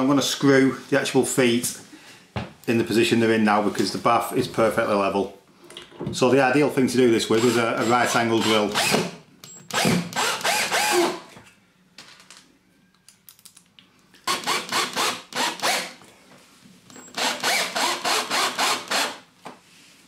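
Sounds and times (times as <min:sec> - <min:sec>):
drill driving screws: 0:07.4 - 0:11.2, 0:14.2 - 0:16.0, 0:17.0 - 0:19.2.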